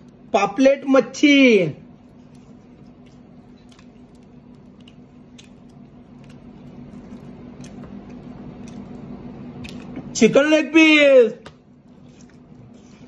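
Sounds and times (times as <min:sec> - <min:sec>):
steady low hum: 0:00.0 - 0:13.0
chewing: 0:01.9 - 0:10.1, 0:11.6 - 0:13.0.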